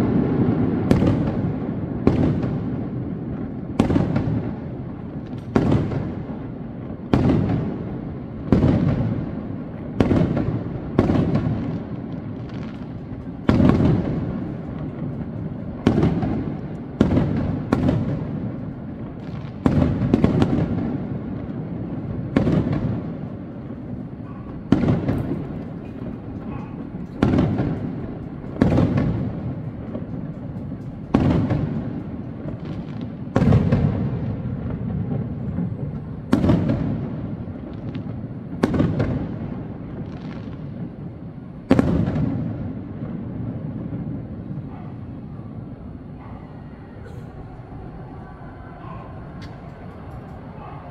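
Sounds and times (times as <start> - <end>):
fireworks bursting: 0.0 - 50.9
rumbling echo: 0.0 - 50.9.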